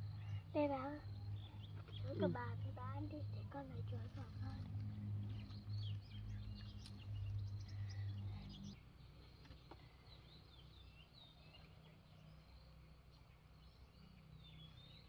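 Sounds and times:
steady low hum: 0.0s - 11.2s
small birds chirping: 0.0s - 15.0s.

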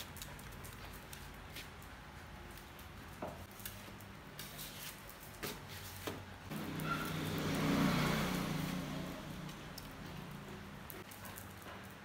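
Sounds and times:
dog claws clicking on tile floor: 0.0s - 5.6s, 9.4s - 12.0s.

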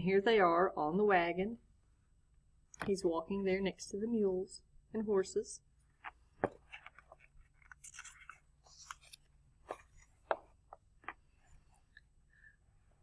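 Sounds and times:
paper pages rustling: 6.0s - 11.4s.

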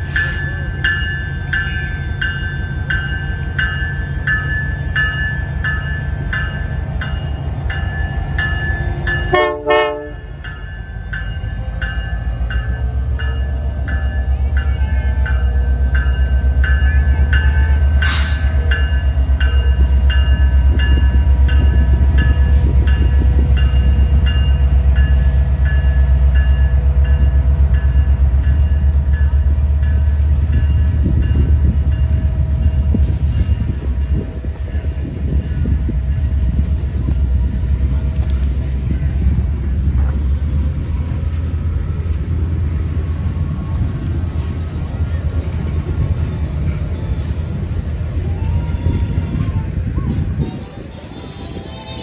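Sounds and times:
locomotive engine rumbling: 0.0s - 52.0s
locomotive horn blast: 9.2s - 10.4s.

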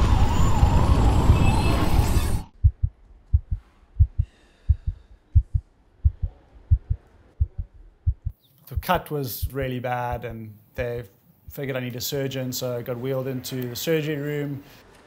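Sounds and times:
heartbeat thumps: 2.6s - 10.4s.

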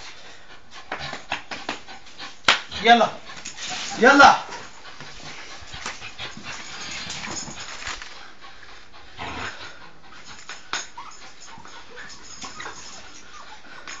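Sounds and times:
dog growling and tugging: 8.9s - 14.0s.

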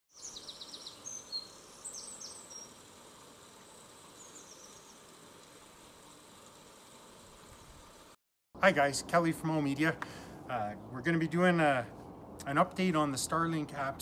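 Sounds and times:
birds chirping: 0.1s - 2.8s, 3.7s - 5.6s
faint background hiss: 0.2s - 14.0s.

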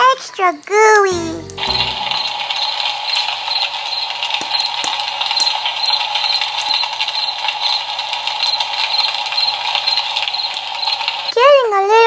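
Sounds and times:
soft high pulse: 1.1s - 2.5s.

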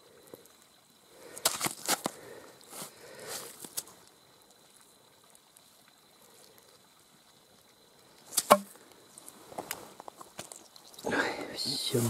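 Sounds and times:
faint clicks of stones: 0.1s - 6.8s, 8.0s - 11.6s
rock striking rock: 8.4s - 8.8s.

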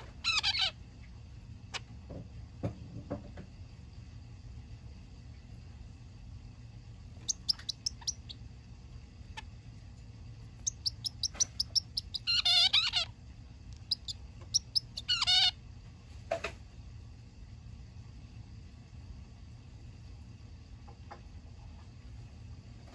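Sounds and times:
finch chirping: 0.2s - 0.7s, 7.2s - 8.4s, 10.5s - 13.1s, 13.8s - 15.5s.

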